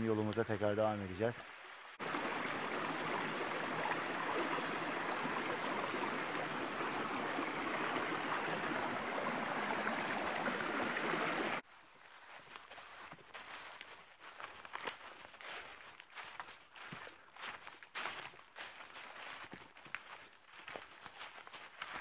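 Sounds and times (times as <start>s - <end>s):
stream babbling over stones: 1.5s - 11.6s.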